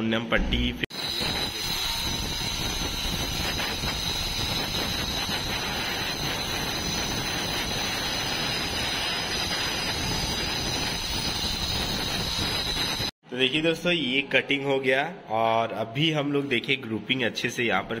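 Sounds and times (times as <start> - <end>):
power cutter motor whine: 0.9 - 13.1.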